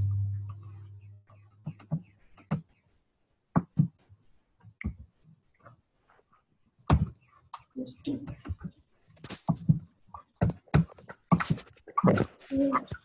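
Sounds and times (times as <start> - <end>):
low hum: 0.0 - 1.3.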